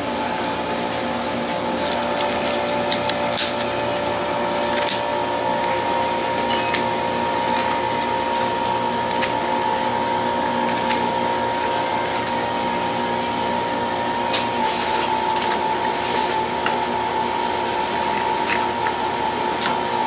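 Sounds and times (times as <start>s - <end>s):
two-tone machine hum: 0.0s - 20.0s
scissors snipping pineapple: 1.8s - 9.4s.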